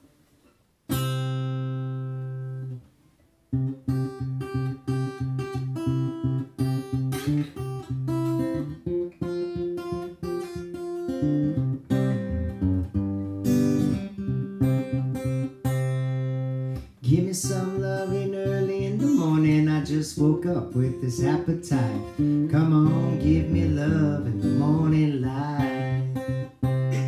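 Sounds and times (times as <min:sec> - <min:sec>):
rhythmic choppy guitar strumming: 0:00.9 - 0:02.8, 0:03.5 - 0:27.0
acoustic guitar chord ringing: 0:17.4 - 0:27.0.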